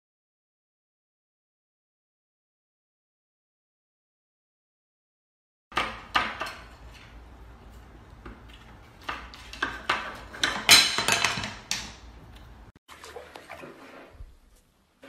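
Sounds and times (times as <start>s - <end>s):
spoon rattling in cabinet handles: 9.2s - 12.0s.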